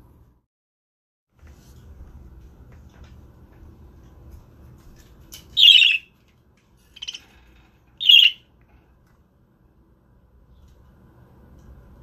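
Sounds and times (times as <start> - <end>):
budgerigar harsh calls: 5.6 - 6.0, 8.0 - 8.4.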